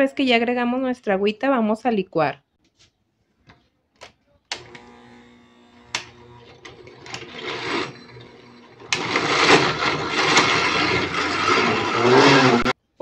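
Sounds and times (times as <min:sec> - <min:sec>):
blender motor running: 0:04.6 - 0:12.8.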